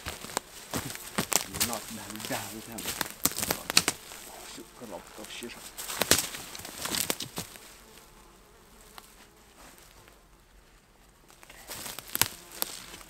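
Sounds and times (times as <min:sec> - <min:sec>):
plastic sheeting crinkling: 0:00.0 - 0:07.5
flies buzzing: 0:00.0 - 0:13.0.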